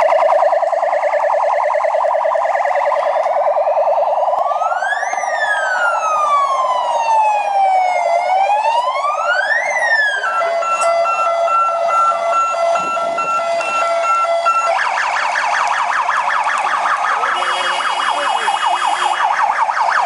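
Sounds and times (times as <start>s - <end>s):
police siren warbling and wailing: 0.0s - 20.0s.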